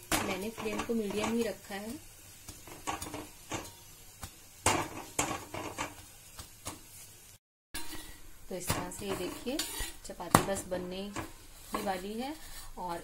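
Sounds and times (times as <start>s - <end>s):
utensil knocking on griddle: 0.0s - 6.9s.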